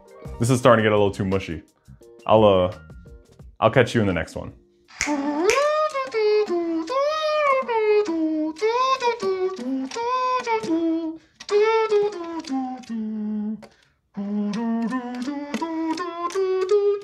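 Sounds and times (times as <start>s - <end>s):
high-pitched voice singing: 4.9s - 17.0s.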